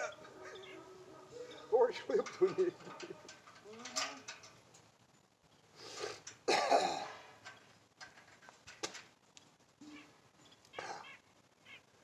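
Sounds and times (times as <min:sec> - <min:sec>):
person coughing: 0:06.5 - 0:07.2.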